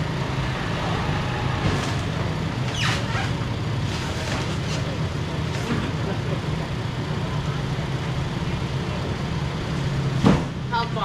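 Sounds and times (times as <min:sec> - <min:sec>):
vehicle engine idling: 0:00.0 - 0:11.0
short falling squeak: 0:02.6 - 0:03.4.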